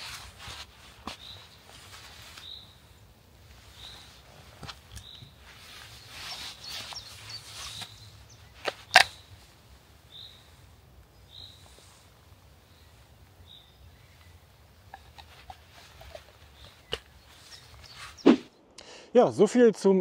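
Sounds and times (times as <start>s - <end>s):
knife sheath rustling: 0.0s - 10.9s, 14.0s - 18.5s
sharp sheath clicks: 8.6s - 9.2s.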